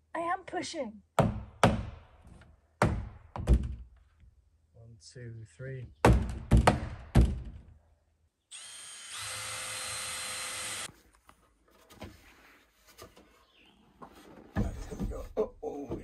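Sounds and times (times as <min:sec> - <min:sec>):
power drill whine: 0:08.5 - 0:10.9.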